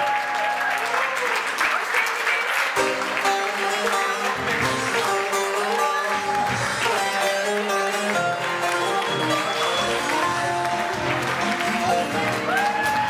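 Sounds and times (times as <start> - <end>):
plucked lute melody: 2.8 - 12.5
live band playing folk music: 2.8 - 13.0.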